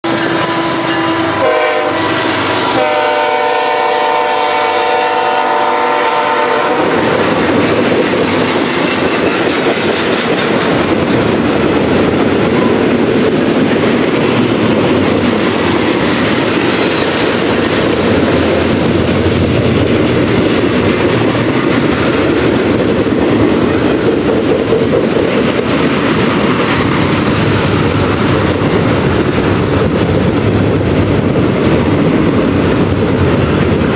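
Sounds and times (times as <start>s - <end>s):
locomotive horn: 0.0s - 7.1s
freight cars rumbling and clattering: 6.8s - 33.9s.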